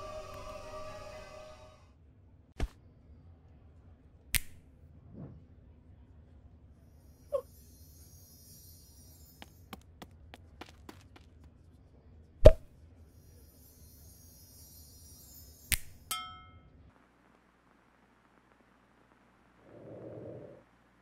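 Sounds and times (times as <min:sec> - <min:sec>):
bell-like ding: 0:13.2 - 0:16.7.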